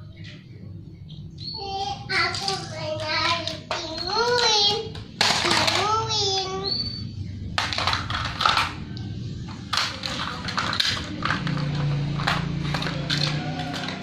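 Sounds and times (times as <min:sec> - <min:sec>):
plastic toys clattering on tiles: 0:02.1 - 0:06.6, 0:07.5 - 0:14.0.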